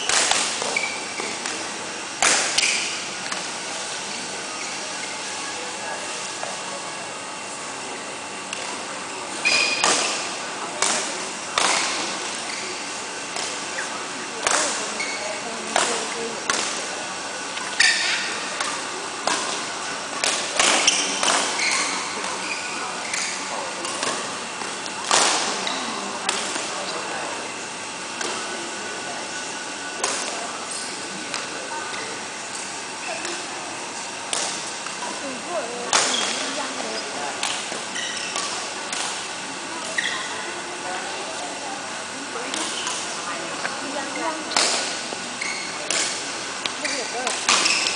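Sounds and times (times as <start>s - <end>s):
racket hitting shuttlecock: 0.0s - 1.4s, 15.8s - 16.8s, 20.2s - 22.4s, 23.1s - 25.6s, 34.3s - 35.1s, 37.4s - 39.3s, 44.5s - 47.9s
steady background hum: 0.0s - 47.9s
rackets smacking shuttlecock: 34.3s - 35.1s, 37.4s - 39.2s, 44.5s - 45.0s, 45.6s - 47.9s.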